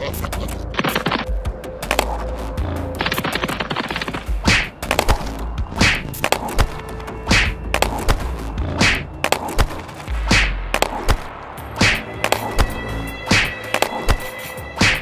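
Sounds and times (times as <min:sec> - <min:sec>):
background music: 0:00.0 - 0:15.0
short swishes: 0:07.3 - 0:08.1, 0:10.3 - 0:15.0.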